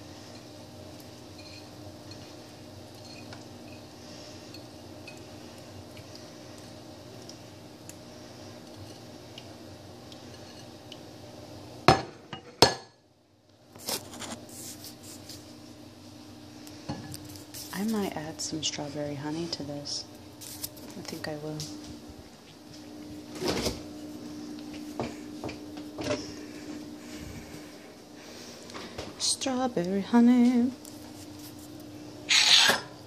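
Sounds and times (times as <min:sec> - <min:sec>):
low hum: 0:21.6 - 0:32.3.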